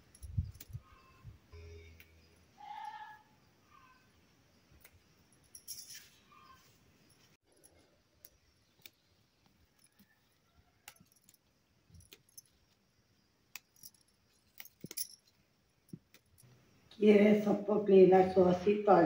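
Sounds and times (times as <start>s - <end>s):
metal bangles clinking: 0.0s - 1.2s, 5.1s - 16.6s.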